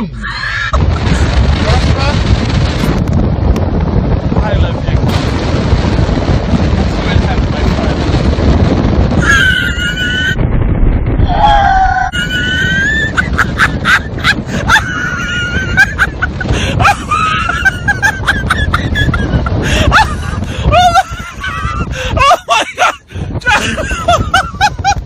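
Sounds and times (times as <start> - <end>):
wind buffeting microphone: 0.0 - 25.0
person shrill squealing cries: 9.2 - 10.4, 11.3 - 13.2.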